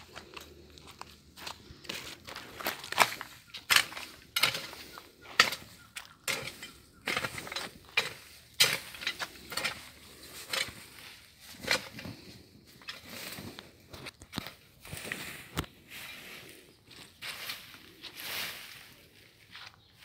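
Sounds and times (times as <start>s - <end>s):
dry leaves and twigs crunching: 0.0s - 20.0s.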